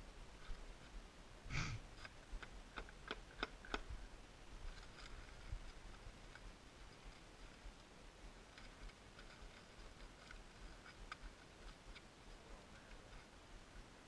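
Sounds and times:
faint small clicks: 2.0 - 3.9.

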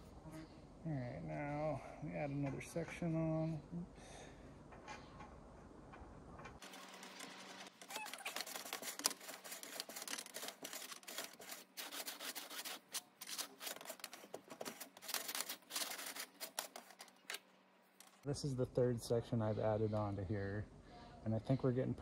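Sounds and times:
brush scraping metal chimney pipe: 7.8 - 17.2.

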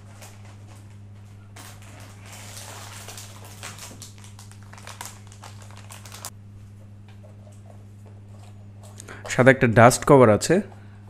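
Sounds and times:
plastic wrapping crinkling: 0.0 - 6.4
low electrical hum: 0.0 - 11.0.

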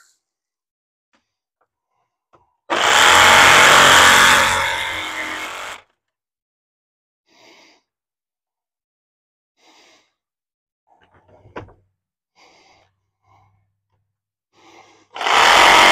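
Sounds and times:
power cutting tool running: 2.7 - 5.8, 15.2 - 15.9.

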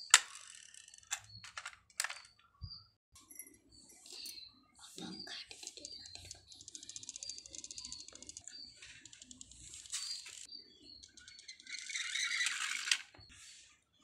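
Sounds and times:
toy wheels rattling on concrete: 0.0 - 2.3, 6.0 - 13.3.

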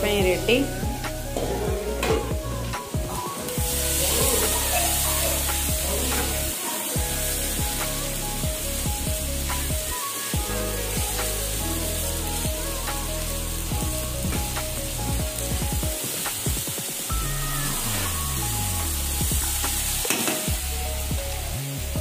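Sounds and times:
background music: 0.0 - 22.0
vegetables sizzling in hot oil: 0.0 - 22.0
metal spatula scraping a pan: 1.3 - 2.3, 3.8 - 7.0.

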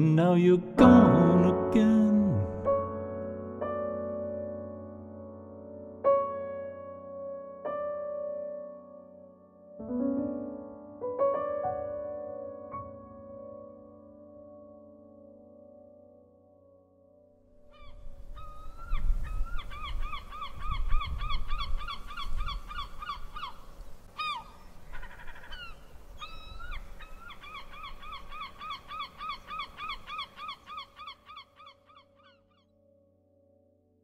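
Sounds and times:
gulls calling: 17.8 - 32.4.

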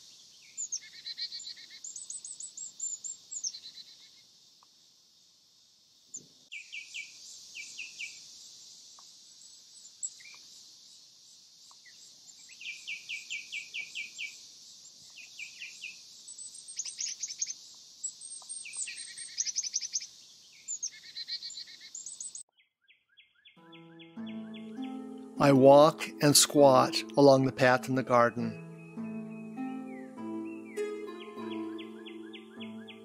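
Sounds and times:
birds chirping: 15.0 - 33.0
background music: 23.6 - 33.0.

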